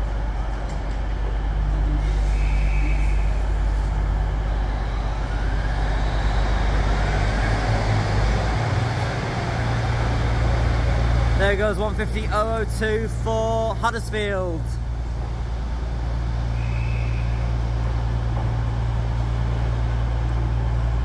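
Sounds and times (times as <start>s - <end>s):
train diesel engines running: 0.0s - 21.0s.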